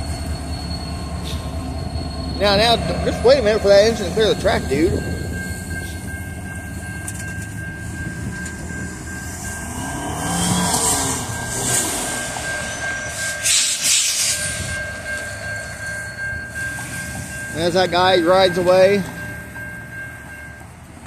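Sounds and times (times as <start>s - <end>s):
crossing warning bell ringing: 0.0s - 21.0s
diesel locomotive engines under throttle: 0.0s - 21.0s
road vehicle passing: 8.2s - 13.4s.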